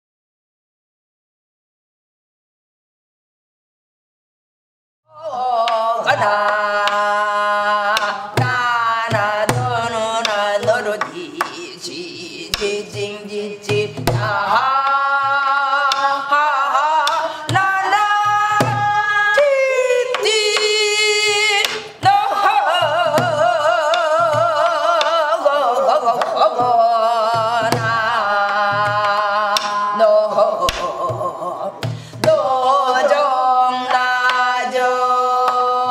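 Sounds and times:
wordless singing with vibrato: 0:05.1 - 0:35.9
traditional drum strokes: 0:05.7 - 0:33.2.

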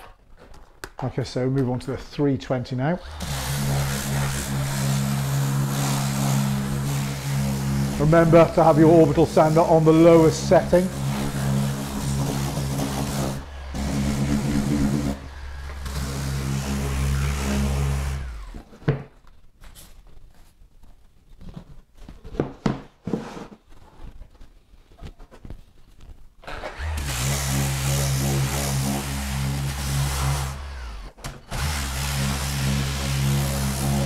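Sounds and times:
electric orbital sander running: 0:03.0 - 0:18.6, 0:26.5 - 0:34.0.

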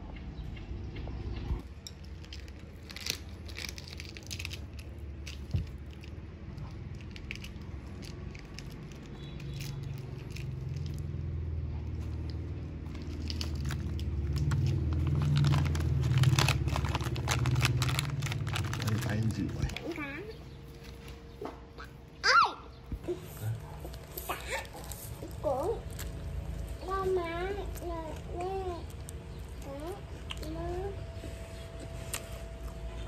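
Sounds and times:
rice paper crinkling: 0:02.1 - 0:06.2, 0:12.9 - 0:20.0
low rumble: 0:09.9 - 0:20.8.

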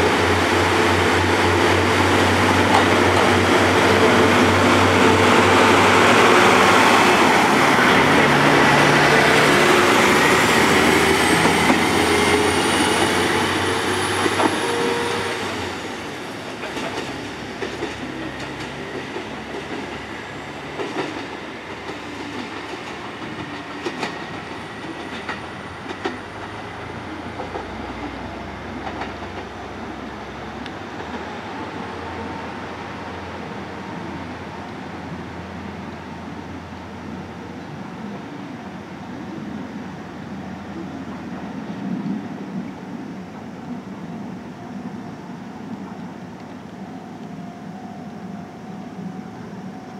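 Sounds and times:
diesel railcar engine: 0:00.0 - 0:49.9
train wheels clacking over rail joints: 0:00.5 - 0:15.7, 0:16.5 - 0:28.1, 0:28.8 - 0:29.6.

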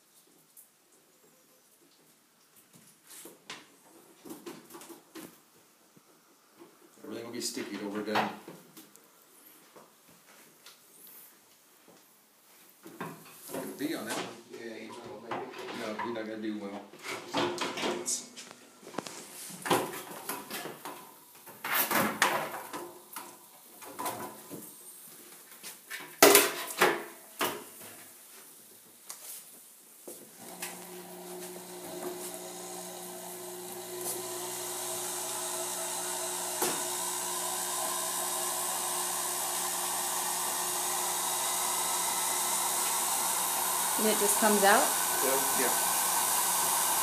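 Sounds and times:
honey extractor motor hum: 0:30.4 - 0:47.0.

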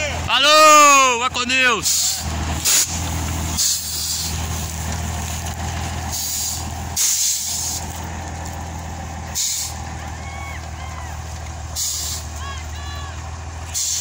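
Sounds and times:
truck diesel engine running: 0:00.0 - 0:14.0
air brake hisses: 0:01.8 - 0:03.0, 0:03.6 - 0:04.4, 0:06.1 - 0:07.9, 0:09.4 - 0:09.8, 0:11.8 - 0:12.3, 0:13.7 - 0:14.0.

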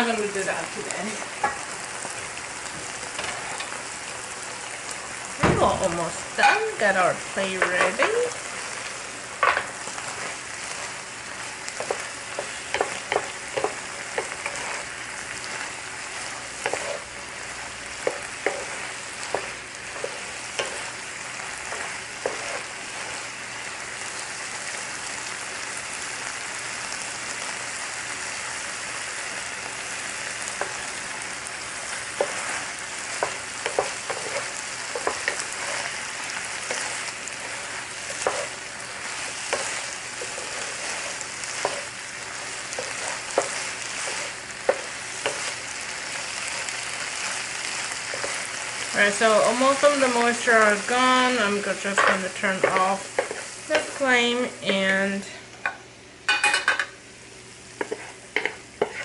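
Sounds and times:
shrimp sizzling in a pan: 0:00.0 - 0:59.0
wooden spatula scraping a pan: 0:09.4 - 0:11.0, 0:11.7 - 0:17.1, 0:18.0 - 0:23.3, 0:32.1 - 0:54.8, 0:57.8 - 0:59.0.

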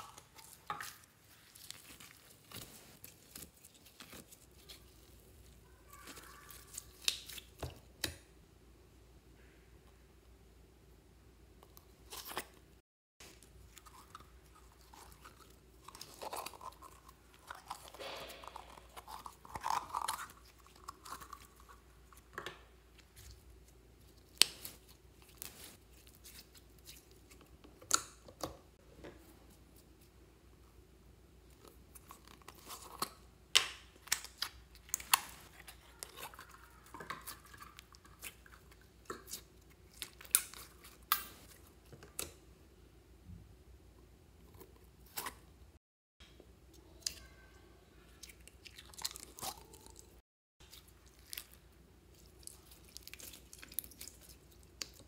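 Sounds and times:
slime crackling and squishing: 0:00.0 - 0:08.1, 0:13.2 - 0:28.2, 0:33.9 - 0:42.3, 0:48.1 - 0:55.0.

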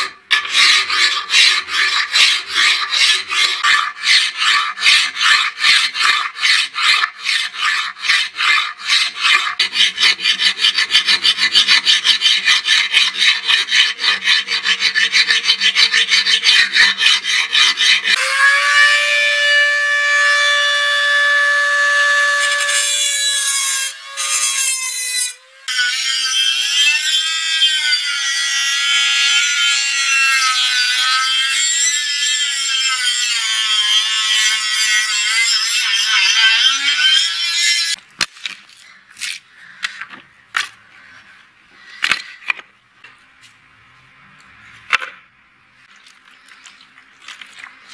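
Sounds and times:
hand file rasping on steel: 0:00.0 - 0:18.2
rotary tool whining and grinding: 0:00.0 - 0:38.0.

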